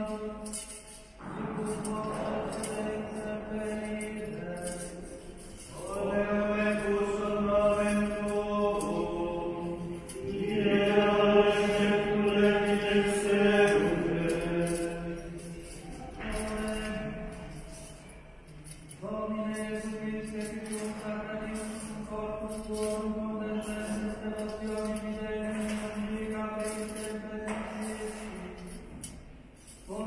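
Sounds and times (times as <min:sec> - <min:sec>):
voices singing plainchant: 0:05.6 - 0:17.9.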